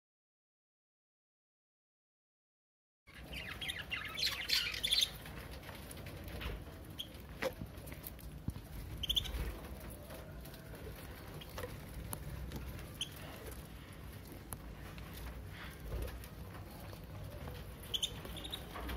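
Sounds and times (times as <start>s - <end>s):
budgerigars chirping: 3.1s - 5.2s, 9.0s - 9.5s, 17.8s - 18.7s.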